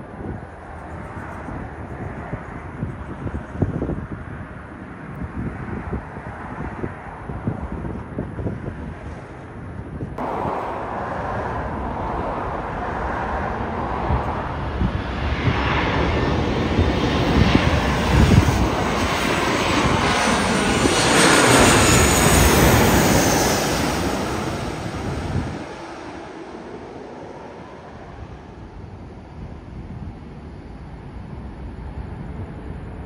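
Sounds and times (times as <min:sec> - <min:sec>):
jet airliner passing overhead: 0:00.0 - 0:33.0
high engine whine: 0:10.2 - 0:33.0.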